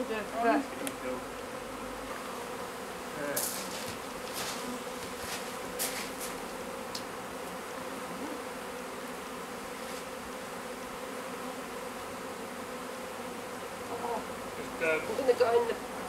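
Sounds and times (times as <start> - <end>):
bees buzzing: 0.0 - 16.0
knocks and scrapes: 3.4 - 6.5.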